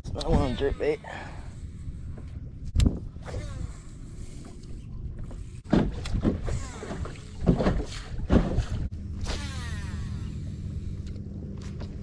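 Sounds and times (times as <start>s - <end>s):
steady low rumble: 0.0s - 12.0s
fishing reel spool whirring: 9.2s - 11.8s.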